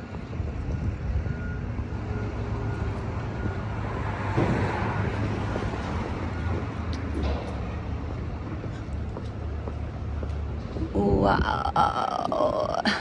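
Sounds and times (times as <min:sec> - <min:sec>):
traffic rumble: 0:00.0 - 0:13.0.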